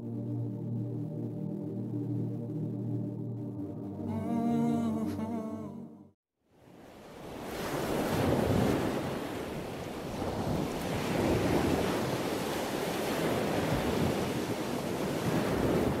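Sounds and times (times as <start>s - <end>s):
rushing water like surf: 6.6s - 16.0s.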